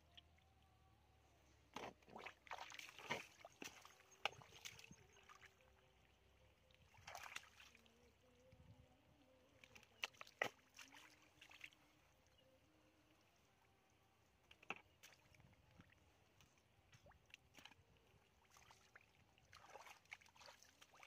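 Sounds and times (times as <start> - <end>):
splashing and squelching muddy water: 1.7 - 8.6, 9.4 - 12.2, 14.4 - 21.0.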